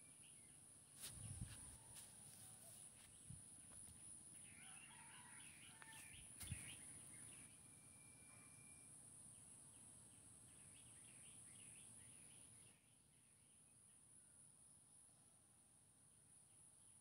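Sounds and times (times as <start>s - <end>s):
faint bird chirps: 0.0s - 14.6s.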